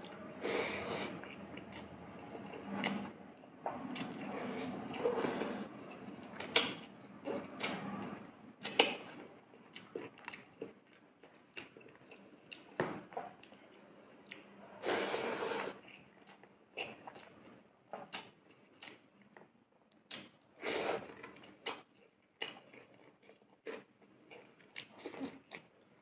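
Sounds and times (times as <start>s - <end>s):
chewing and mouth smacks: 3.9s - 4.3s, 8.6s - 14.5s, 18.0s - 20.4s, 21.1s - 25.7s.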